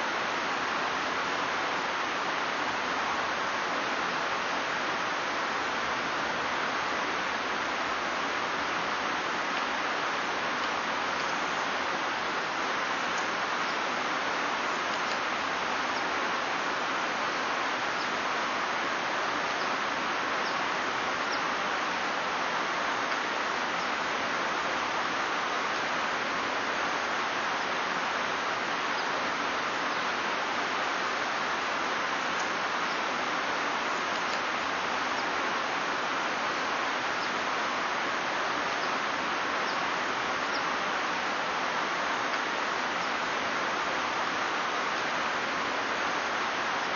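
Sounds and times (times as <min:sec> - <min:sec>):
river whitewater roaring: 0:00.0 - 0:46.9
faint high ticks: 0:34.1 - 0:34.5.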